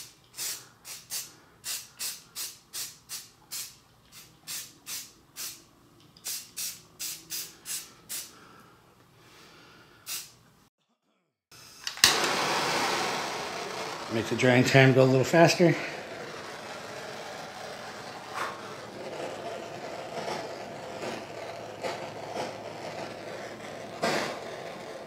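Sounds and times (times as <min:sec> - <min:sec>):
spray can puffs: 0:00.0 - 0:08.4, 0:10.1 - 0:10.4, 0:15.6 - 0:24.8.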